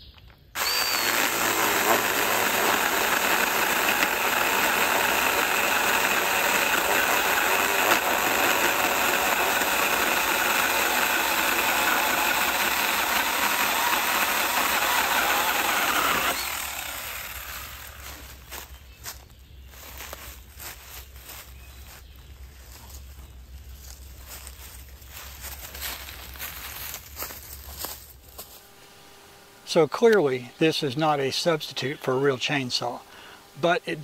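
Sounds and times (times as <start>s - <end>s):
electric chainsaw cutting wood: 0.6s - 18.8s.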